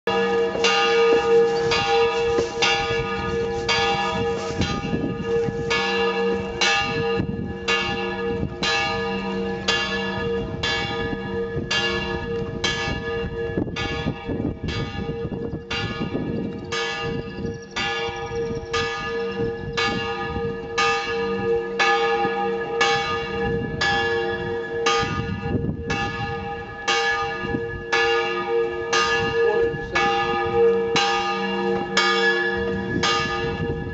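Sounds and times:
church bell tolling: 0.1s - 33.9s.

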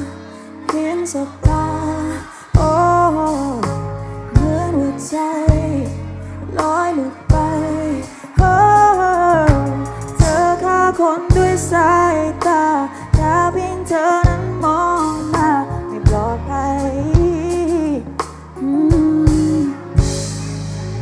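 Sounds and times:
woman singing: 0.0s - 20.3s
struck bass notes: 1.4s - 21.0s.

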